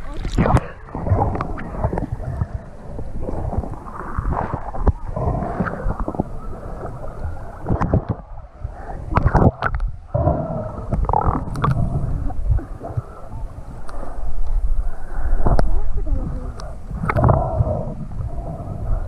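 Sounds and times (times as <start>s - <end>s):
sharp water splashes: 0.0s - 2.6s
muffled water sloshing and gurgling: 0.0s - 19.0s.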